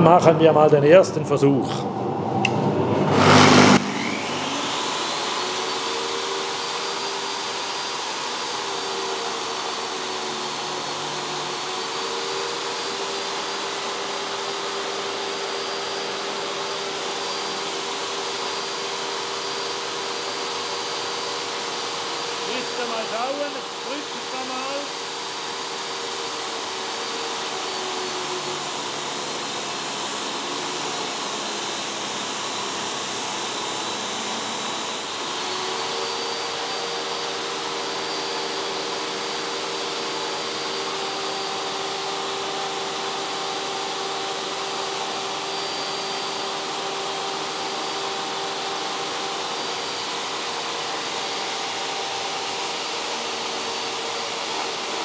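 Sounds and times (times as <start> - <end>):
dust extractor running: 0.0 - 55.0
sanding disc whirring hum: 1.9 - 55.0.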